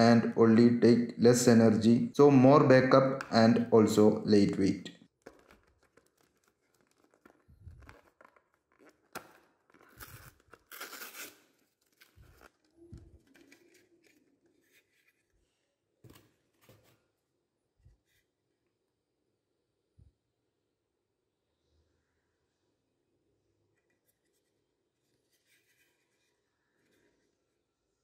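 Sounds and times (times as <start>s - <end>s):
plastic packaging crackling and tearing: 5.1s - 14.4s.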